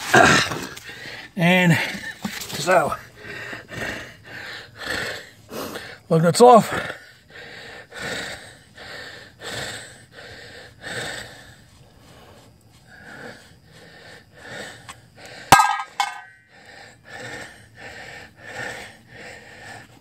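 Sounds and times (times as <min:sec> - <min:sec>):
man breathing rapidly: 0:00.0 - 0:20.0
metallic clink: 0:15.6 - 0:16.4.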